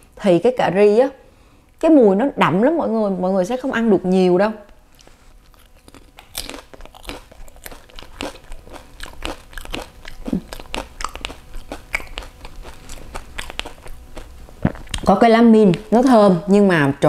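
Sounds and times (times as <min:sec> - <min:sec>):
crisp food crunching while chewed: 0:05.0 - 0:15.1.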